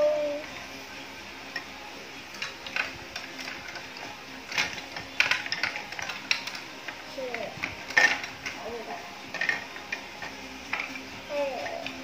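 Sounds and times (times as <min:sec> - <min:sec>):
plastic toy blocks clicking: 0:02.3 - 0:12.0.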